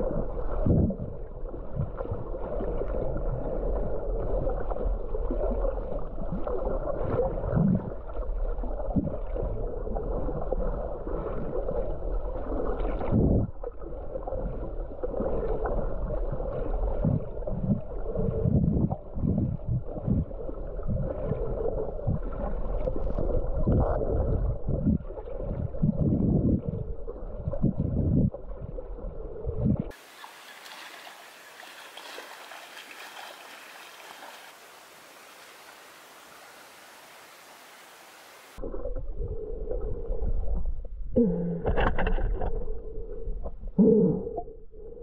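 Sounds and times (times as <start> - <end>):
low thumps and sloshing: 0.0 - 34.6, 38.6 - 42.8
underwater moving water: 0.0 - 45.0
open air hiss: 30.0 - 38.6.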